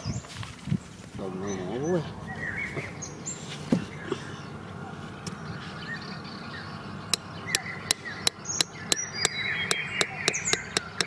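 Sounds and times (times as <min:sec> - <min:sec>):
birds chirping: 0:00.0 - 0:11.0
hammer striking metal stake: 0:07.5 - 0:11.0.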